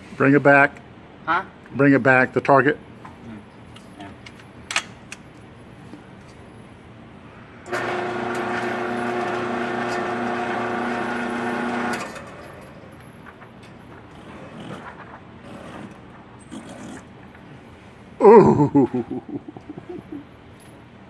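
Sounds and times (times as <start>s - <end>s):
target carrier motor running: 7.7s - 17.4s.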